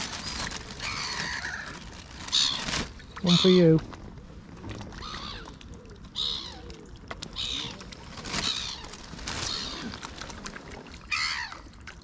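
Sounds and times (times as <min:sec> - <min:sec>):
gulls squawking: 0:00.5 - 0:03.8.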